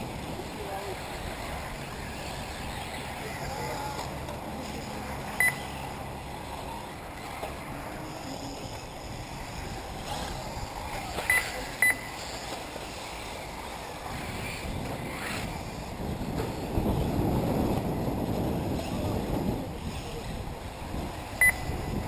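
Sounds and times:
wind buffeting microphone: 0.0 - 22.0
short high electronic beeps: 5.4 - 5.6, 11.3 - 12.1, 21.4 - 21.7.

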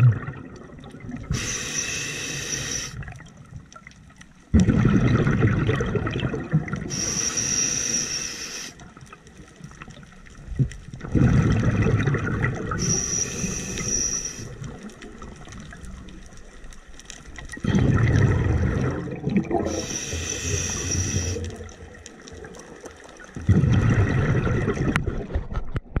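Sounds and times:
exhaled bubbles gushing: 0.0 - 3.5, 4.5 - 7.6, 9.6 - 16.3, 17.4 - 25.9
regulator hissing inhalations: 1.3 - 3.0, 6.9 - 8.8, 12.8 - 14.6, 19.7 - 21.6.

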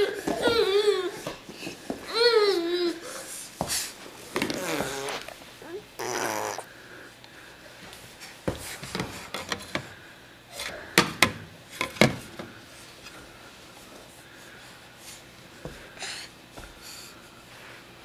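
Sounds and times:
baby snorting and huffing: 3.8 - 6.7
baby squealing: 4.6 - 6.7.

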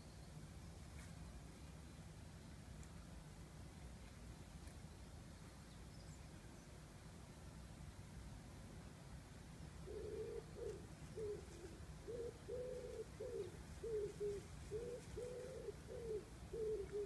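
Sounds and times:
pigeon cooing: 9.8 - 17.0.

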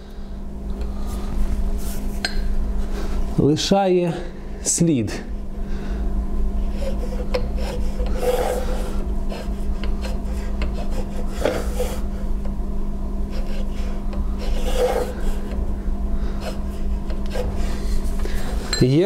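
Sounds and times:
steady low hum: 0.0 - 19.0
height gauge scraping on metal: 6.7 - 12.1, 13.3 - 15.5.

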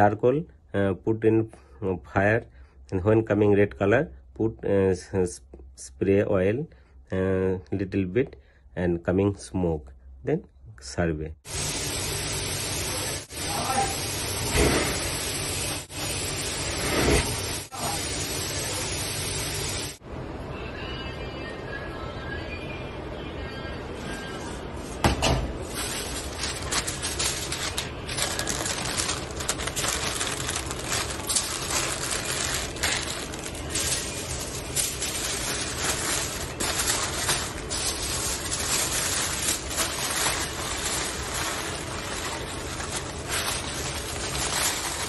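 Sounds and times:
foil and paper crinkling: 25.6 - 45.0.

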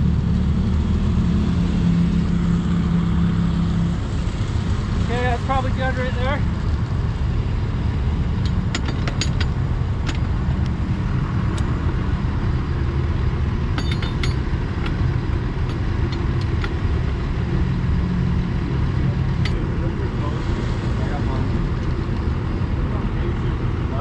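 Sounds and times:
metal clinks and taps: 8.4 - 10.2, 13.7 - 15.0, 15.6 - 16.8.

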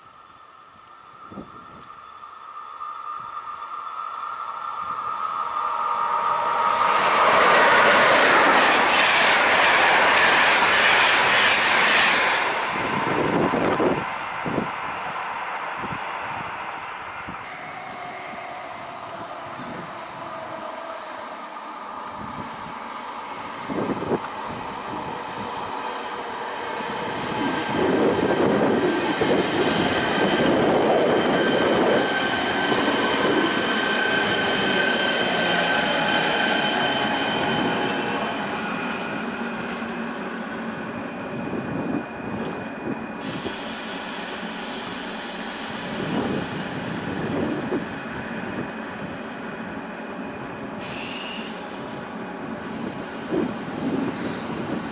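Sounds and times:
train cars rumbling: 1.2 - 54.9
train wheel and brake squeal: 15.7 - 21.1, 25.3 - 54.9.

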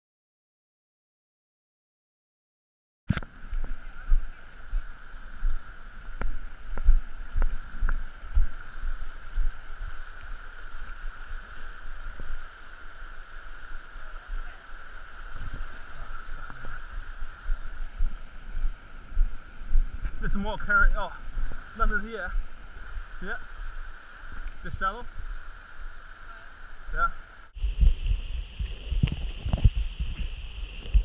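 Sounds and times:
river rushing over stones: 3.2 - 19.6.

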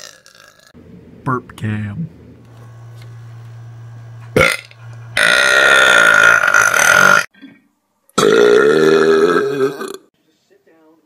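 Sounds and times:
low steady hum: 0.8 - 6.8
man belching loudly: 4.3 - 7.3, 8.2 - 10.1.

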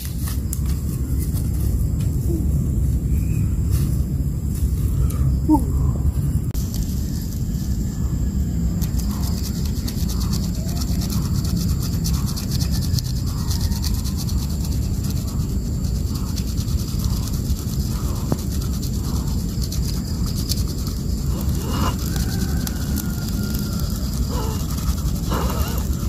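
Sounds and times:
steady low rumble: 0.0 - 26.0
wood on wood rubbing: 20.4 - 26.0.

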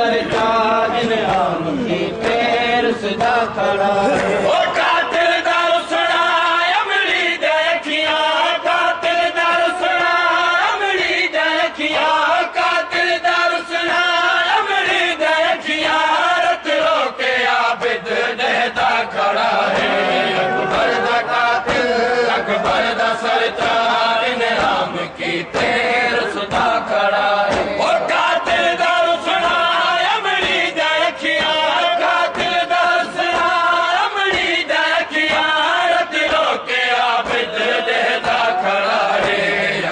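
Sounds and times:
group of men singing: 0.0 - 39.9
man leading a chant: 18.6 - 35.8.

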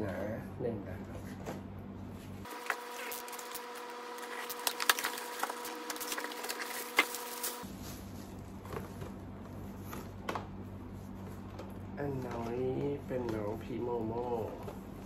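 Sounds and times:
packaging clicks and crinkles: 2.5 - 7.6.

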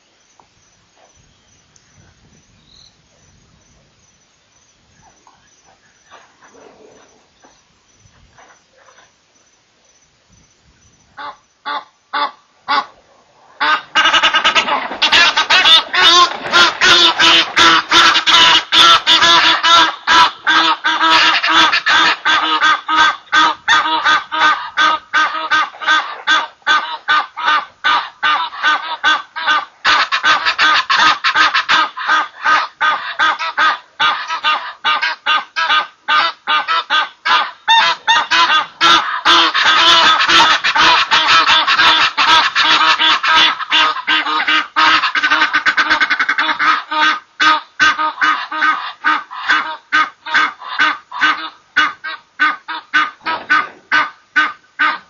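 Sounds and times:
geese honking: 13.6 - 55.0.

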